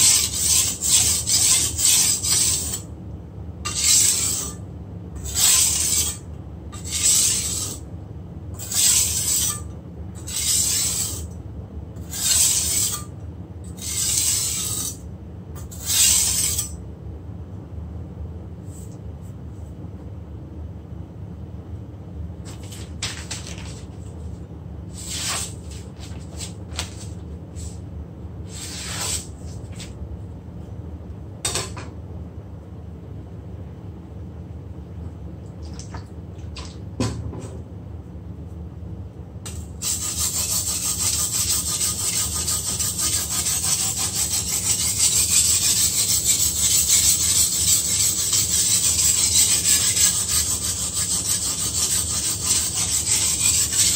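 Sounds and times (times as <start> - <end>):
blade scraping on whetstone: 0.0 - 2.8, 3.7 - 4.6, 5.2 - 6.2, 6.8 - 7.8, 8.6 - 11.3, 12.0 - 13.1, 13.8 - 15.0, 15.6 - 16.8, 25.0 - 25.6, 28.5 - 29.3, 39.5 - 53.9.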